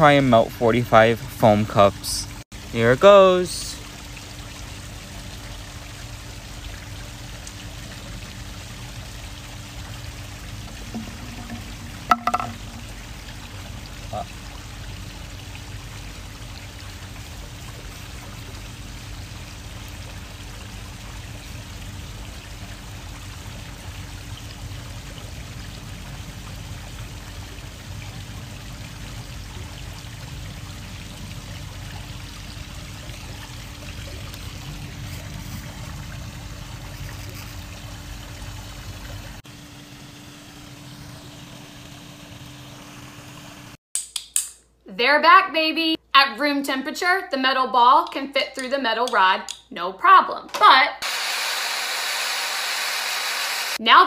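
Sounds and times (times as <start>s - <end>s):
liquid trickling through foam cups: 1.6s - 39.4s.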